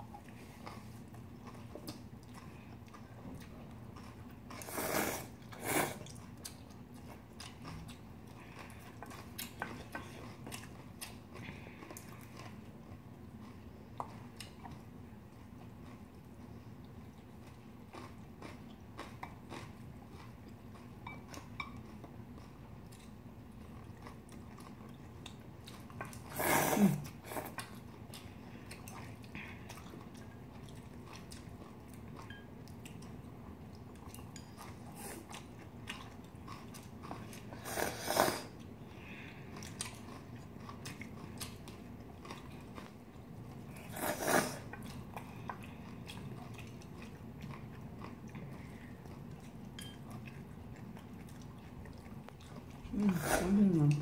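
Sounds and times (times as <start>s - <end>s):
chewing and crunching food: 0.0s - 54.0s
loud slurps: 43.9s - 44.6s
chopsticks and spoons clicking: 49.7s - 50.0s.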